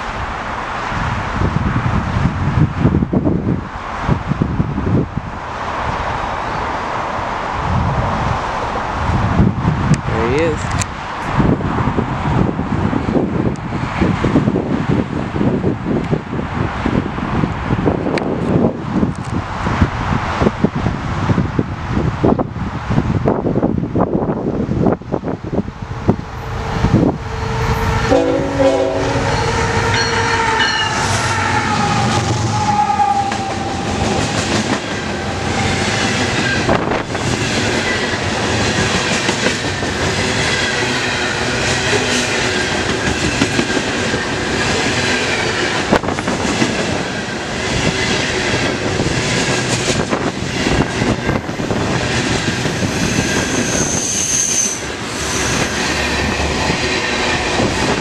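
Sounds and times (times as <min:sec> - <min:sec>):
freight cars rumbling: 0:00.0 - 0:58.0
train horn chord: 0:27.6 - 0:33.9.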